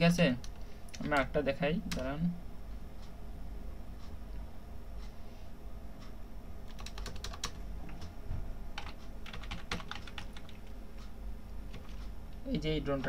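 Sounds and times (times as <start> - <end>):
steady low hum: 0.0 - 13.0
typing on computer keyboard: 6.7 - 8.1, 8.8 - 10.7, 11.7 - 12.0.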